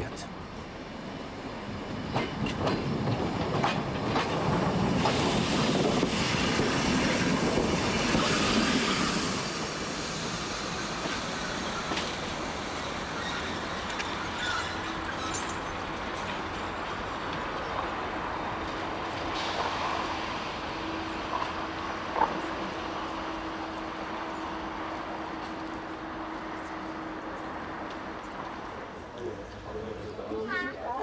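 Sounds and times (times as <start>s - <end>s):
train wheels squealing: 8.2s - 16.3s.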